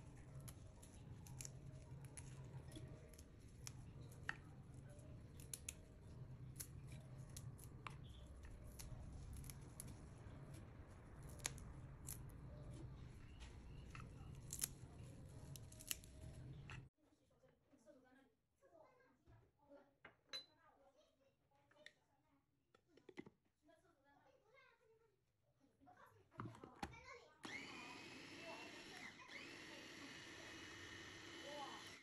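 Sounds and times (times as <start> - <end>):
parsley snapping and tearing: 0.1 - 16.9.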